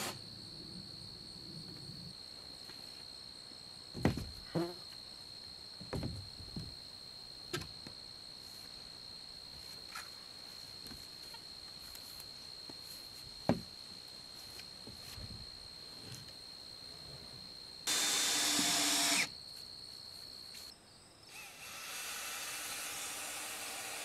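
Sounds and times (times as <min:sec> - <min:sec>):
high-pitched insect drone: 0:17.8 - 0:19.4.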